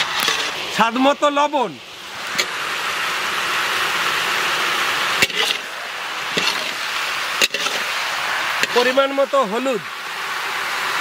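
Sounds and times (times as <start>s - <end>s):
metal spatula scraping pan: 0.0s - 0.6s, 5.2s - 5.7s, 6.3s - 8.0s, 8.6s - 9.0s
potatoes sizzling in hot oil: 0.0s - 11.0s.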